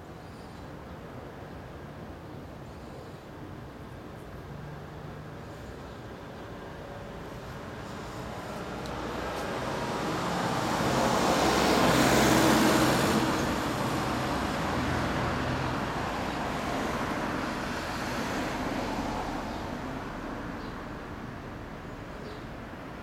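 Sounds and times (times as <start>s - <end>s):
vehicle passing on road: 7.2s - 21.0s.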